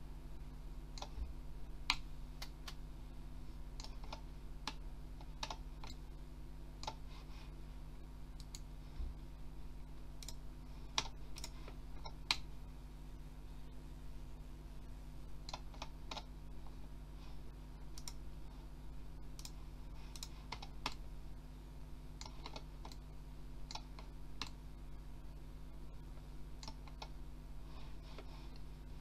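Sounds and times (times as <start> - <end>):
steady low hum: 0.0 - 29.0
mouse and keyboard clicks: 3.8 - 6.0, 6.8 - 7.0, 10.2 - 12.5, 15.4 - 16.3, 19.4 - 21.0, 22.2 - 23.0, 23.7 - 24.6, 26.6 - 27.2.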